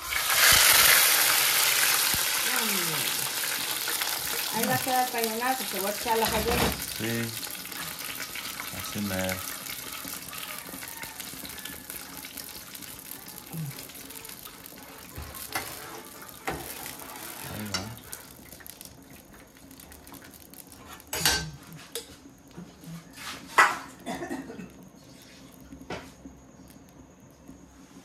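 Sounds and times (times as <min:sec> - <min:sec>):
steady hiss: 0:00.0 - 0:10.4, 0:12.6 - 0:22.4
pots and metal utensils clattering: 0:03.3 - 0:18.8, 0:20.0 - 0:22.2, 0:23.0 - 0:24.5.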